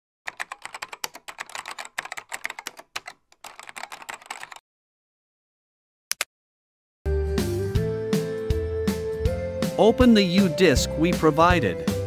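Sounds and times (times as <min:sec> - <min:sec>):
keyboard typing: 0:00.3 - 0:04.6.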